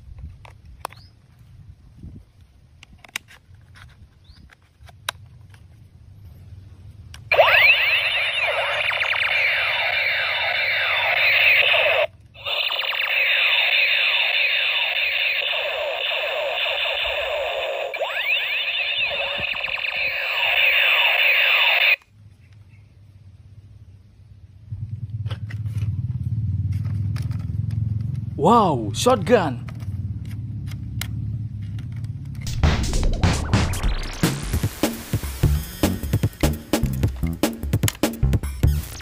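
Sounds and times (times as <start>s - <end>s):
toy gun laser firing tones: 7.3s - 22.0s.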